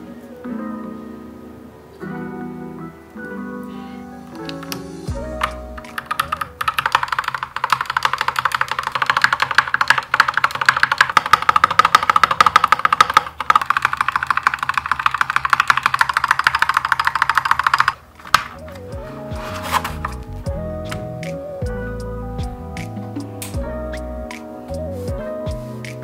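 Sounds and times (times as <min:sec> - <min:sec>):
soft background music: 0:00.0 - 0:12.3, 0:15.1 - 0:26.0
mechanical keyboard typing: 0:04.4 - 0:18.7.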